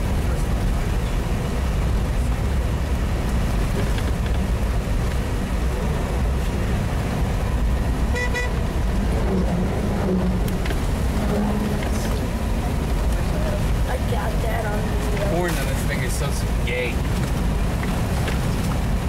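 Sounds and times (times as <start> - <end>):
vehicle engine and tyres rumbling: 0.0 - 19.0
short high horn toot: 8.1 - 8.6.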